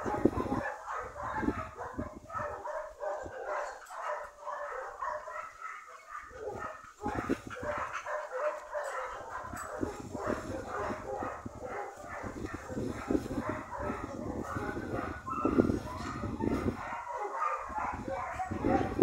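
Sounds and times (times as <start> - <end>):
dogs barking: 0.0 - 19.0
low rumble on microphone: 9.5 - 16.9.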